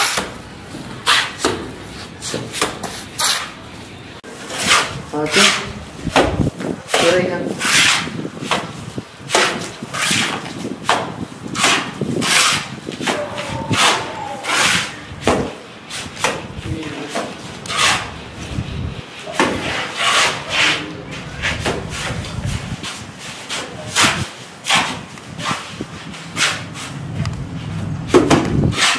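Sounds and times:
trowel scraping mortar: 7.0 - 8.3, 11.5 - 15.1, 17.1 - 18.2, 19.2 - 25.7.

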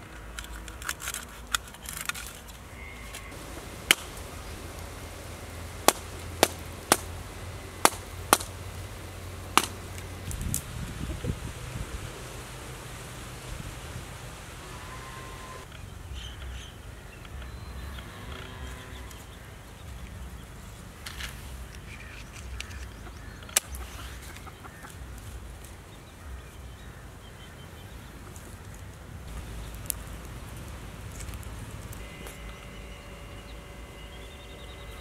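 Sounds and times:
low outdoor rumble: 0.0 - 35.0
match striking: 3.2 - 7.2, 7.8 - 10.7, 29.3 - 32.4
chickens clucking: 22.1 - 25.3.

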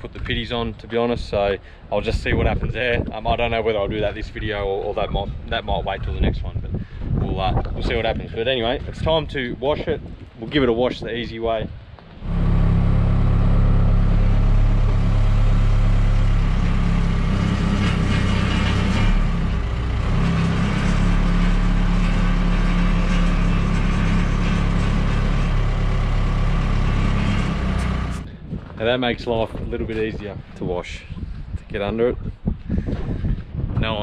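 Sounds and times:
engine running steadily: 11.8 - 30.5.

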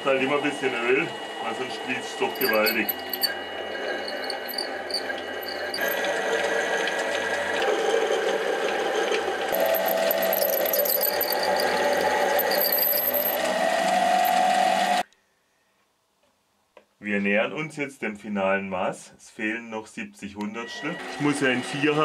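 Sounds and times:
lathe running: 0.0 - 15.0
whining cutting tone: 0.6 - 6.2, 8.7 - 15.0.

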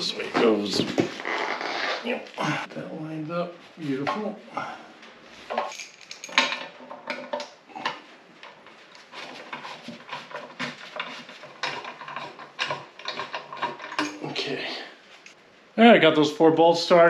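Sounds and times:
metallic clinks of bolts: 5.6 - 6.7.

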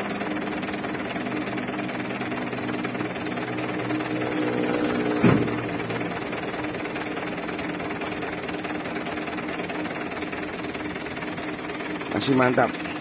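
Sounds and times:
diesel engine idling: 0.0 - 13.0
sharp knock: 5.2 - 5.7.

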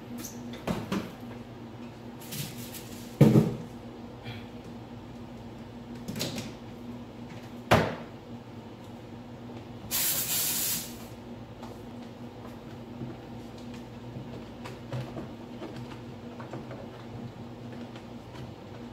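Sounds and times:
low electrical hum: 0.0 - 18.9
spray hiss: 9.9 - 11.1.

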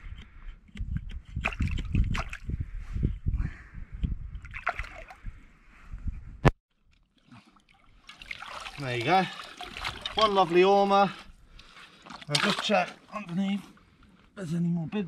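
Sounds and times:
water sloshing and splashing: 1.4 - 2.5, 4.4 - 5.3, 6.7 - 13.8.

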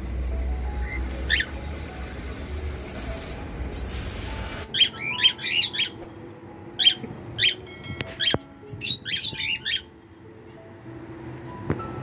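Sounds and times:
parrots chirping: 0.8 - 1.6, 4.6 - 6.0, 6.8 - 9.9.

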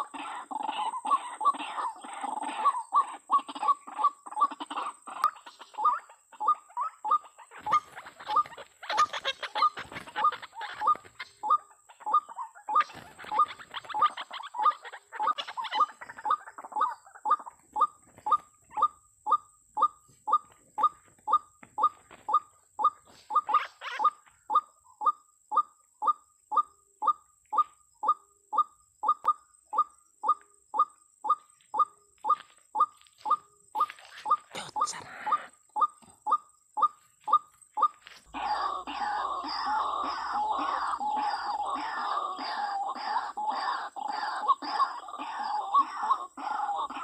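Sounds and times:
bird calling short repeated notes: 3.5 - 47.0
wings flapping: 7.6 - 11.4, 12.8 - 14.3.

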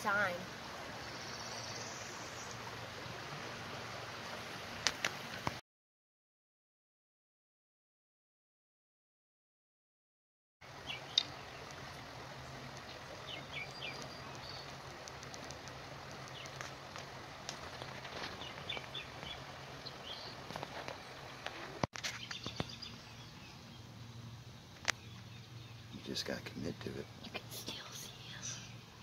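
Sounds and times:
bird chirps: 10.8 - 11.7, 12.8 - 14.7.

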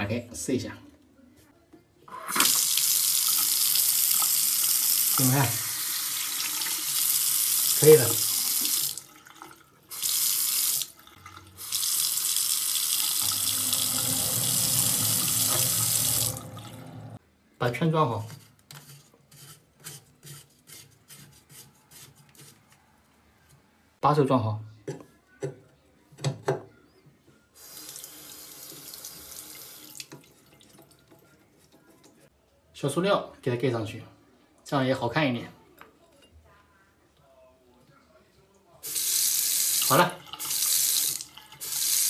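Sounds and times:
tap water running into sink: 6.3 - 17.2, 39.0 - 42.0.

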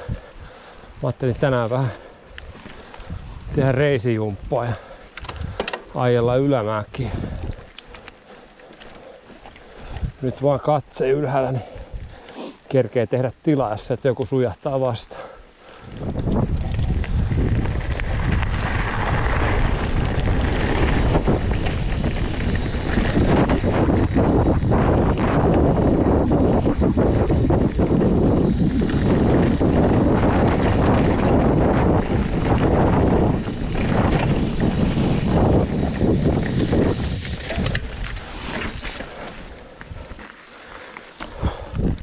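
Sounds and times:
bike tyre rumble: 0.0 - 42.0
wind on microphone: 2.4 - 7.8, 9.8 - 10.4, 15.8 - 40.2, 41.2 - 42.0.

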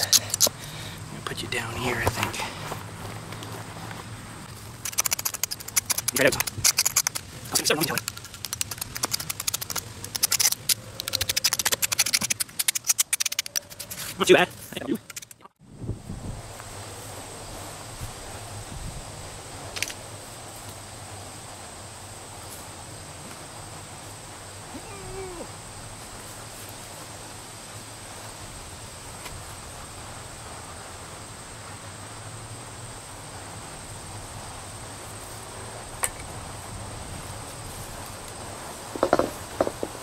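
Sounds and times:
high insect trill: 0.0 - 40.0
isolated clicks: 4.8 - 13.9.

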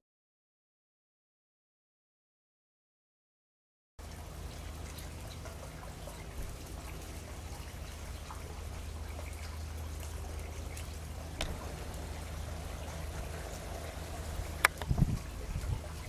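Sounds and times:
hiss like trickling water: 4.0 - 16.0
low hum: 4.0 - 16.0.

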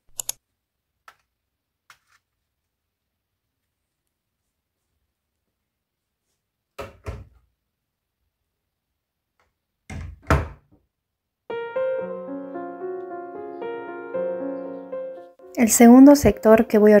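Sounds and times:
cupboard doors thudding shut: 9.9 - 10.7
piano music: 11.5 - 17.0.

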